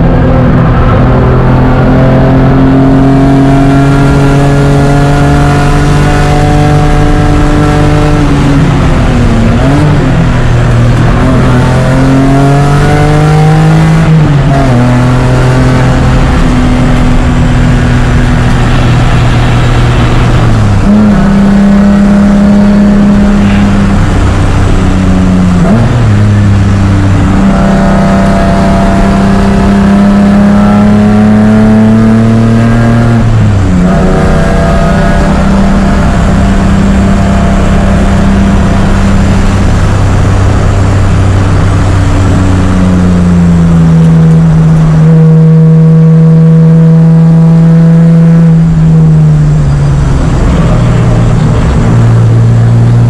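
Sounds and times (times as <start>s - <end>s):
race car engine at high revs: 0.0s - 53.0s.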